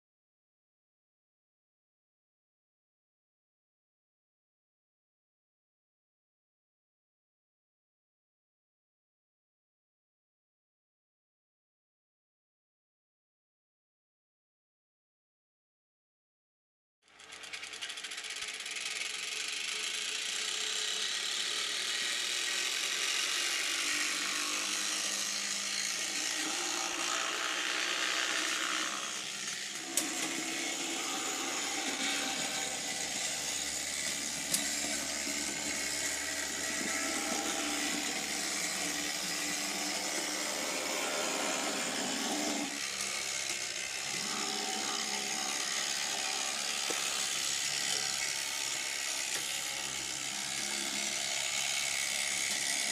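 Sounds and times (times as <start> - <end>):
model tram motor whirring: 17.1 - 52.9.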